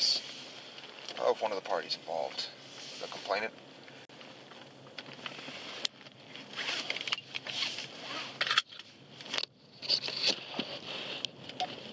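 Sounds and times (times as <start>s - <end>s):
clothing rustling against microphone: 5.1s - 8.4s, 9.8s - 11.9s.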